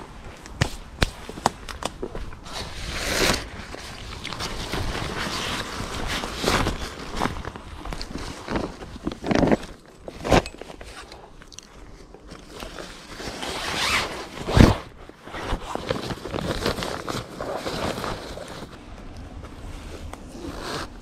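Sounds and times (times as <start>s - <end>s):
fabric seat rustling: 12.4s - 18.8s.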